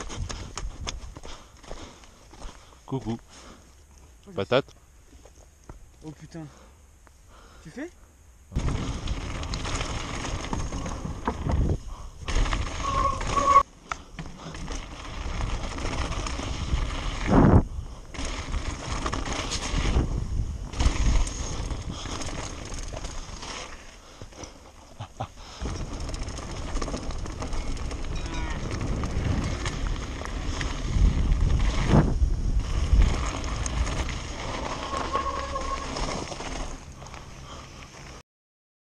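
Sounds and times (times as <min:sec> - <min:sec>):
bike tyres rumbling on gravel: 0:00.0 - 0:04.2, 0:08.5 - 0:38.2
bike rattles and knocks: 0:08.5 - 0:17.4, 0:18.1 - 0:37.3
wind on microphone: 0:27.5 - 0:36.0.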